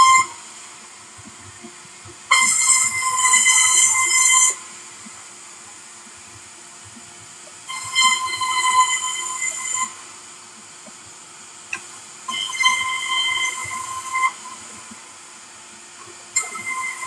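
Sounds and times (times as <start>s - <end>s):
circular saw whining through wood: 0.0s - 0.5s, 2.3s - 4.7s, 7.6s - 10.1s, 12.3s - 15.0s, 16.3s - 17.0s.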